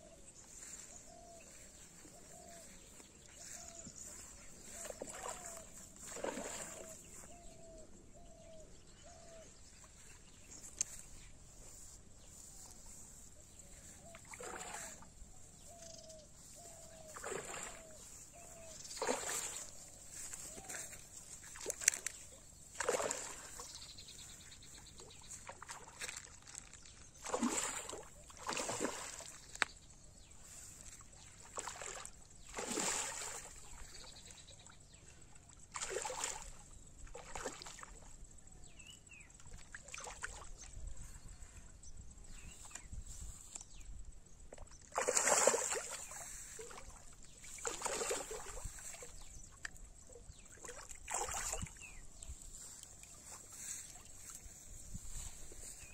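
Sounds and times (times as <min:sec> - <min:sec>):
fish splashing at water surface: 0:14.2 - 0:15.0, 0:22.8 - 0:23.6, 0:27.2 - 0:29.5, 0:31.5 - 0:33.6, 0:35.8 - 0:36.5, 0:44.9 - 0:46.9, 0:47.5 - 0:49.0, 0:50.6 - 0:51.7.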